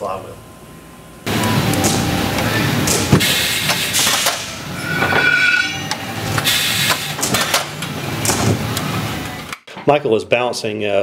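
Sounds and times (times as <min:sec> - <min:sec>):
machinery running: 0:03.9 - 0:06.7
brief machine whine: 0:04.4 - 0:06.8.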